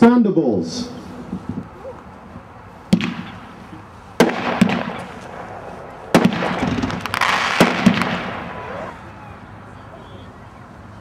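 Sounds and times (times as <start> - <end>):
firework crackling: 2.9 - 9.0
firework reports: 2.9 - 10.4.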